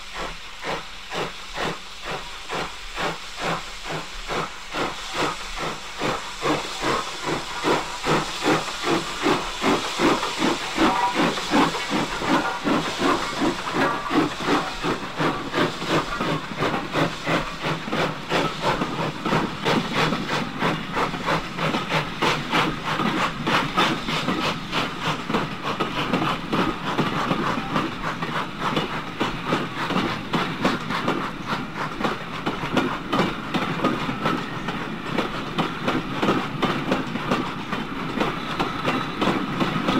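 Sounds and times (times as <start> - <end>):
hiss of steam: 0.0 - 39.9
steam locomotive exhaust beats: 0.0 - 39.9.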